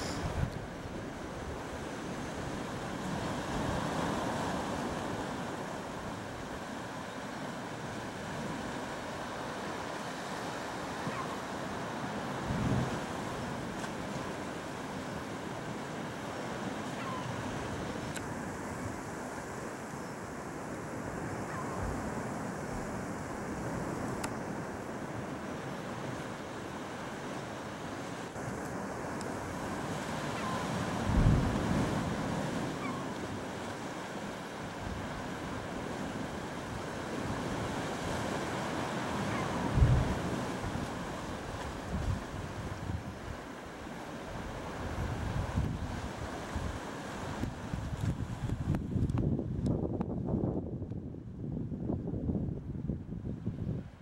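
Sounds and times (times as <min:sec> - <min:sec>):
wind noise on microphone: 0:00.0 - 0:05.2, 0:12.4 - 0:13.7, 0:29.4 - 0:33.0, 0:34.8 - 0:43.4, 0:44.3 - 0:54.0
sea waves breaking over rocks: 0:00.0 - 0:49.8.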